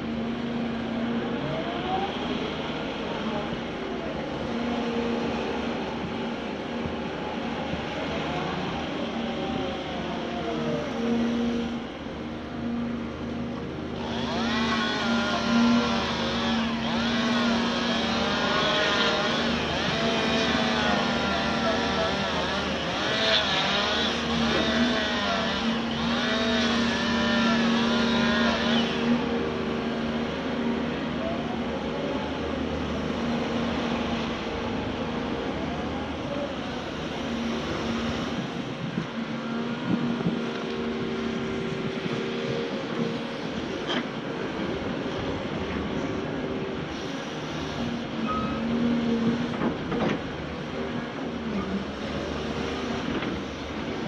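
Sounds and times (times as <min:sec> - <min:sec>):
excavator engine and hydraulics humming: 0:00.0 - 0:54.0
wavering high squeal: 0:48.2 - 0:48.8.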